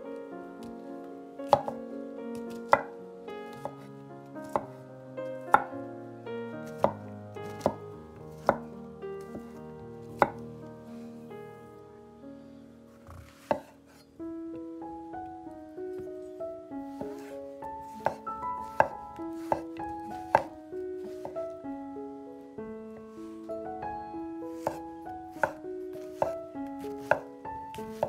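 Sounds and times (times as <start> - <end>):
soft background music: 0.0 - 28.0
knife chopping on wooden board: 1.5 - 1.8, 2.6 - 2.9, 6.8 - 8.6, 10.2 - 10.4, 13.1 - 13.7, 17.9 - 20.5, 21.1 - 21.4, 24.6 - 24.8, 25.4 - 28.0.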